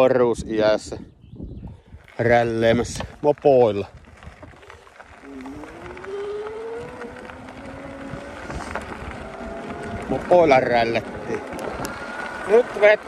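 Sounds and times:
tyres rolling on gravel: 2.0s - 13.0s
electric bike motor whining: 4.2s - 13.0s.

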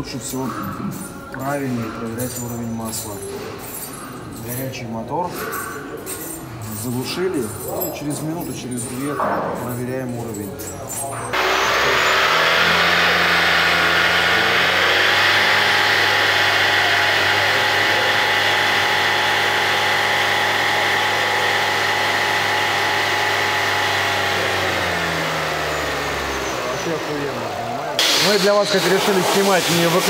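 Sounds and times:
car engine revving: 11.3s - 30.0s.

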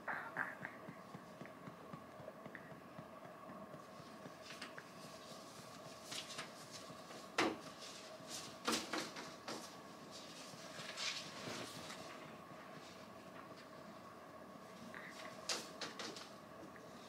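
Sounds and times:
two-tone electronic hum: 0.0s - 8.4s.

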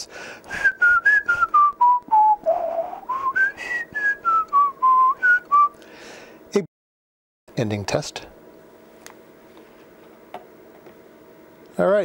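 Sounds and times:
person whistling into radio: 0.6s - 5.7s.

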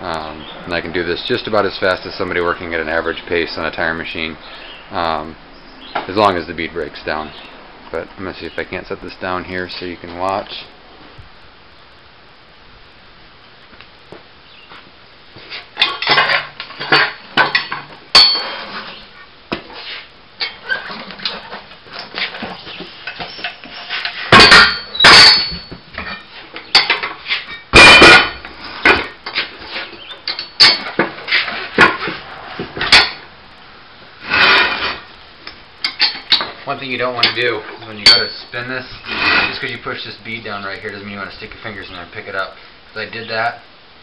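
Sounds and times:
tire scuffing: 14.1s - 15.8s, 18.5s - 20.2s, 31.1s - 32.8s.

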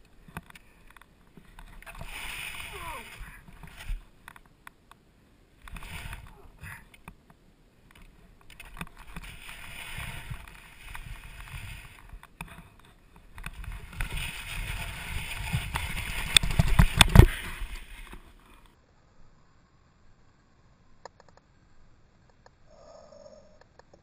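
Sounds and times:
skis scraping over snow: 0.0s - 4.2s, 5.7s - 6.8s, 8.2s - 18.7s.

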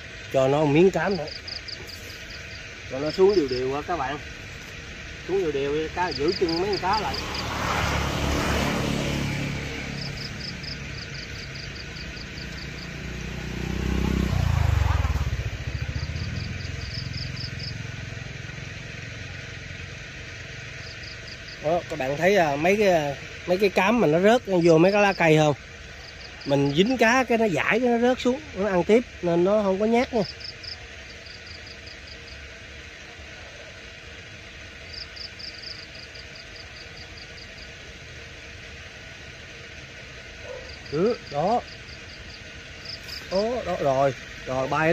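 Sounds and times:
high chirping pips: 0.0s - 7.6s, 40.4s - 44.9s
small engine pulsing: 0.0s - 44.9s
steady outdoor hiss: 0.0s - 44.9s.

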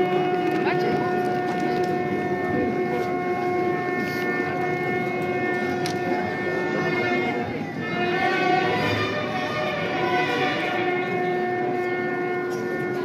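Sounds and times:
crowd din: 0.0s - 13.0s
long held note: 0.0s - 13.0s.

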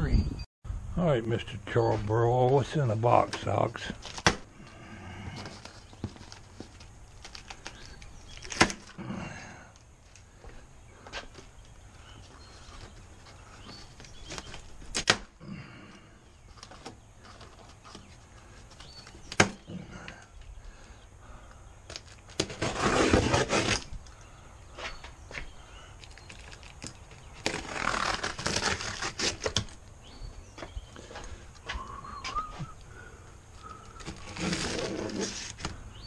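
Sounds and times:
plastic strapping snapping: 5.4s - 9.0s, 14.0s - 15.4s, 26.0s - 29.8s
cardboard box scraping on floor: 22.4s - 23.8s, 34.2s - 35.6s.

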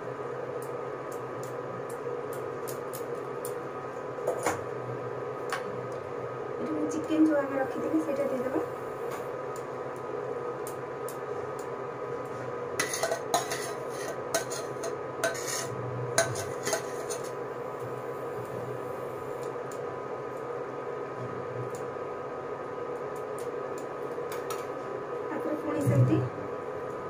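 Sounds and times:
steady hum: 0.0s - 27.0s
spatula scraping steel bowl: 12.8s - 17.4s.

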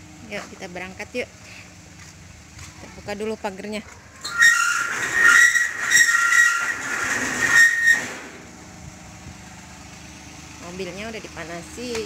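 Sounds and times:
gate clanks: 4.2s - 8.4s
metal gate squealing: 4.2s - 8.4s.

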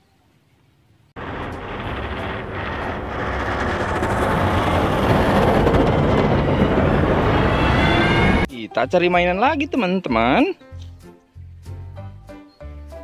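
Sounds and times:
diesel engine under load: 1.2s - 8.5s
plow blade scraping snow: 1.2s - 8.5s.

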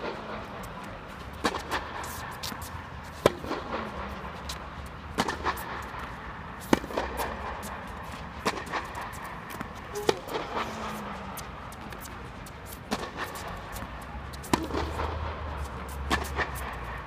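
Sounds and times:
tennis racket hitting ball: 1.4s - 16.9s.

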